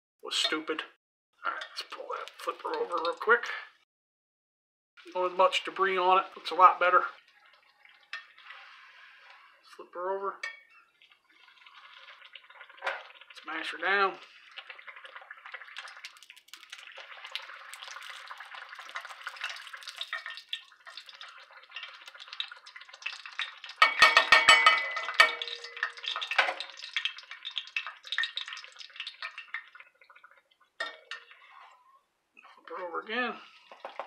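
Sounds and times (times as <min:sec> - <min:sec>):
dough sizzling in hot oil: 0:05.0 - 0:09.6, 0:10.6 - 0:31.8, 0:33.5 - 0:34.0
metal spatula knocking on pan: 0:23.8 - 0:25.8.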